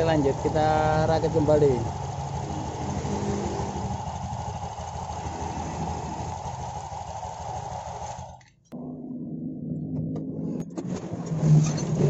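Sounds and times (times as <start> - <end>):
scooter engine idling: 0.0 - 8.5.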